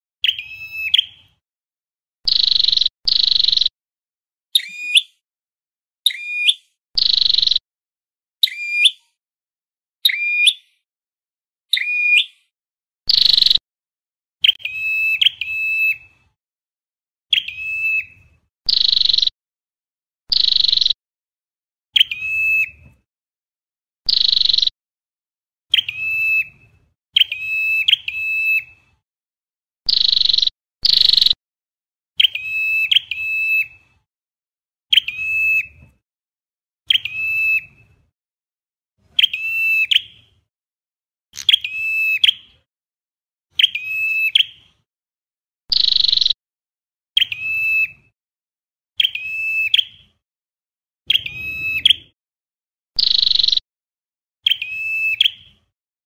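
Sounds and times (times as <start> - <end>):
bird whistling song: 0.2 - 1.4, 2.3 - 3.7, 4.5 - 5.2, 6.0 - 7.6, 8.4 - 9.2, 10.0 - 10.8, 11.7 - 12.5, 13.1 - 13.6, 14.4 - 16.2, 17.3 - 19.3, 20.3 - 21.0, 22.0 - 22.9, 24.1 - 24.7, 25.7 - 28.8, 29.9 - 31.4, 32.2 - 33.9, 34.9 - 35.8, 36.9 - 37.9, 39.1 - 40.2, 41.4 - 42.6, 43.5 - 44.6, 45.7 - 46.4, 47.2 - 48.1, 49.0 - 50.1, 51.1 - 52.2, 53.0 - 53.6, 54.4 - 55.6.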